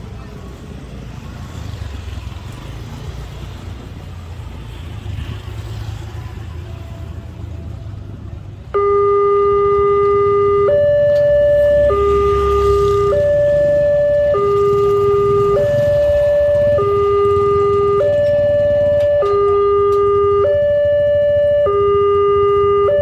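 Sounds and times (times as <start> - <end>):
electronic two-tone alarm: 8.7 - 23.0.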